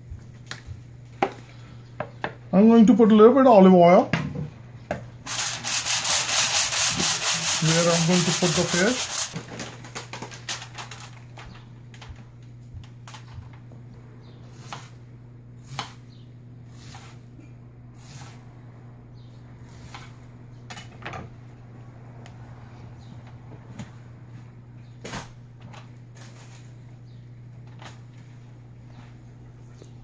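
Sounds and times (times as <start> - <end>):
steady low hum: 0.0 - 30.0
foil crinkling: 7.7 - 11.5.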